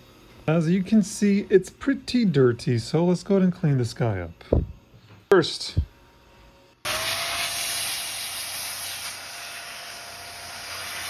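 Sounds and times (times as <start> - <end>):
electric air duster blowing: 6.8 - 11.0.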